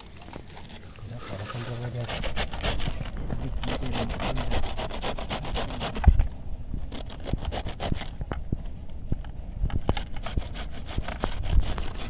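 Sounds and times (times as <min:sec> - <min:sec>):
fast rhythmic scraping strokes: 0:01.0 - 0:06.1.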